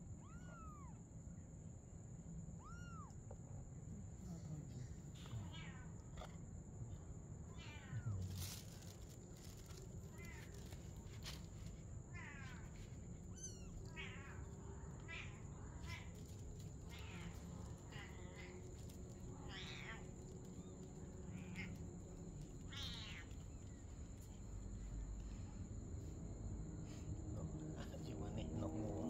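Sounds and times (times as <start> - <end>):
kitten mewing: 7.5 - 8.8.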